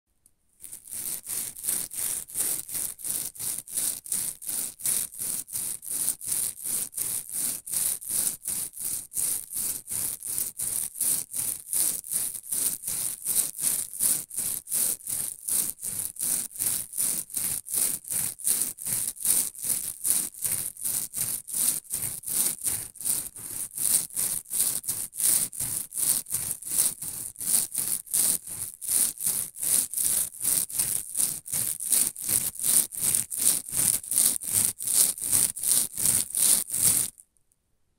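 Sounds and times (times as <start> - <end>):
foam nets rubbing together: 20.8 - 37.2.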